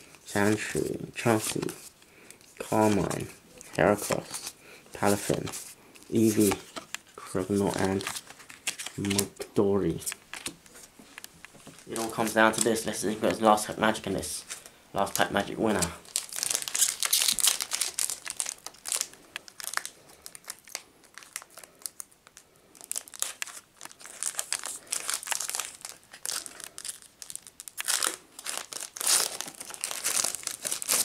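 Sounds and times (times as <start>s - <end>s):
foil wrapper crinkling: 7.5s - 9.3s, 14.5s - 31.0s.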